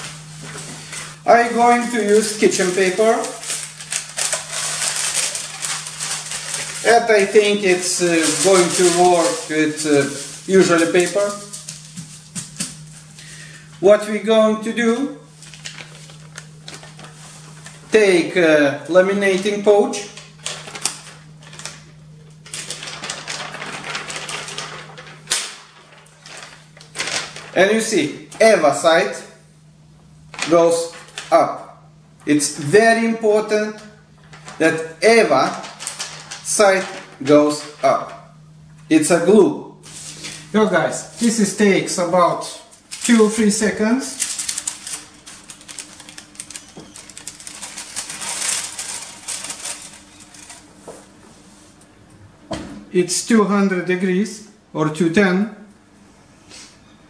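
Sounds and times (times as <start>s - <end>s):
paper and plastic crinkling: 0.0s - 13.2s, 15.3s - 18.0s, 19.2s - 28.4s, 30.3s - 31.4s, 34.2s - 38.3s, 42.5s - 51.1s
plastic film crackling: 0.0s - 13.2s, 15.3s - 18.0s, 19.2s - 28.0s, 30.3s - 31.4s, 34.2s - 38.3s, 42.4s - 50.8s
faint steady hum: 0.0s - 57.0s
plastic sheet snapping: 22.4s - 27.6s.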